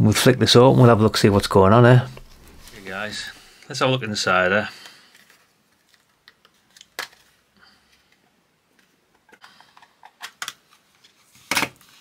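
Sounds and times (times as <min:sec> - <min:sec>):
plastic case clicks and snaps: 0:09.3 - 0:10.6.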